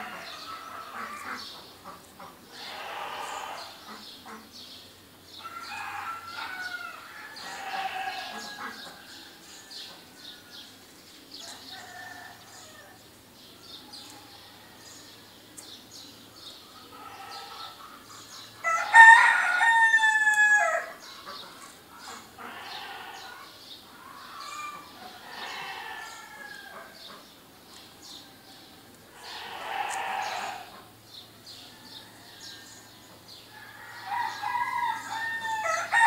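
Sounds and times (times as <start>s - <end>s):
loud drawn-out bird call: 2.5s - 4.0s.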